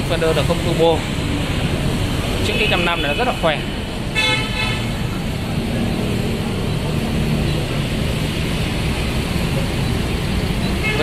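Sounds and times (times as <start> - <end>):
low rumble of passing vehicles: 0.0 - 11.0.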